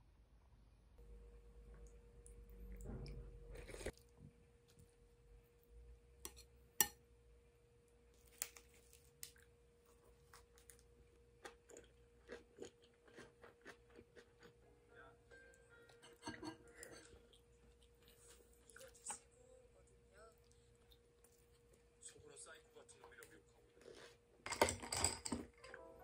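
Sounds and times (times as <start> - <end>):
faint steady hum: 0.0 - 26.0
chewing crunches: 10.3 - 14.6.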